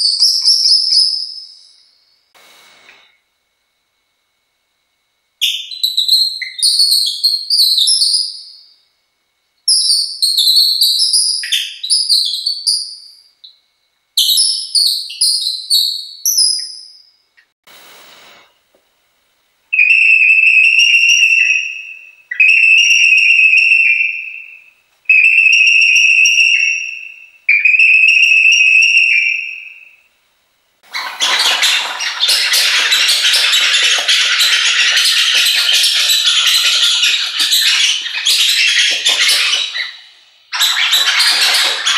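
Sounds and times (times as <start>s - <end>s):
long whistled bird-call notes: 0.0s - 2.3s, 5.4s - 8.9s, 9.7s - 13.6s, 14.2s - 17.3s, 19.7s - 30.1s, 31.2s - 41.9s
scratchy rattling chatter: 30.9s - 39.8s.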